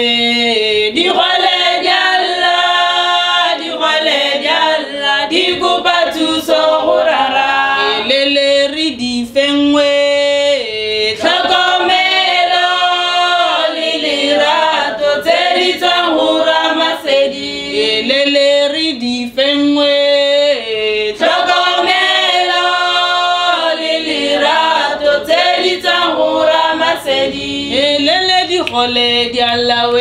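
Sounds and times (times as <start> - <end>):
women's group singing a cappella: 0.0 - 30.0.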